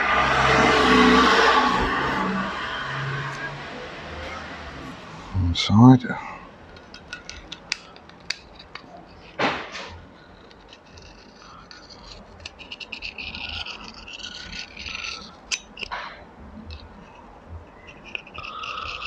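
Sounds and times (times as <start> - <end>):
deburring tool scraping metal: 6.7 - 19.0.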